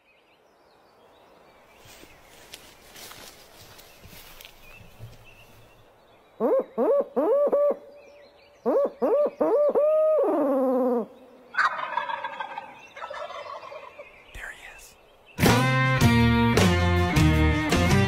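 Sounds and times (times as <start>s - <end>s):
owl hoots through cupped hands: 6.4s - 7.9s, 8.6s - 11.2s
turkey gobbling: 11.5s - 14.0s.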